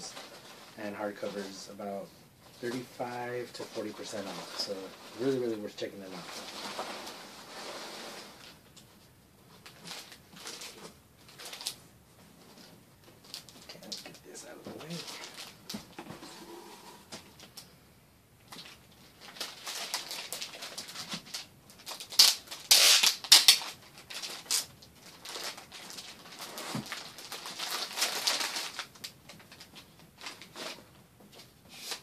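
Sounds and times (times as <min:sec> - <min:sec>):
packing material crinkling: 0:02.6 - 0:08.8, 0:09.6 - 0:11.8, 0:12.5 - 0:16.0, 0:18.4 - 0:30.9.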